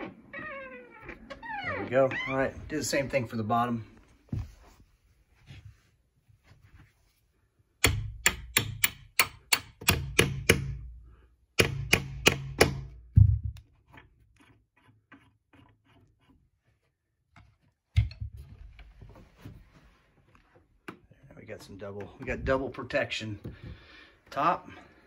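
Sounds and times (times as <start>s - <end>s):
hammer tapping metal hinge pin: 7.8s - 10.8s.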